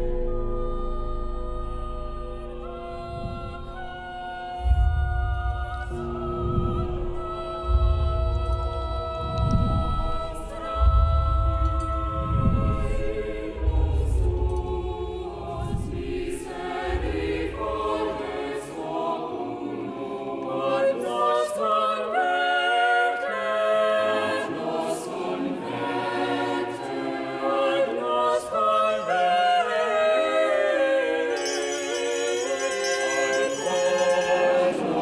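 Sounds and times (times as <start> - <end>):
deep low rumble: 0.0 - 17.8
choir singing chords: 0.0 - 35.0.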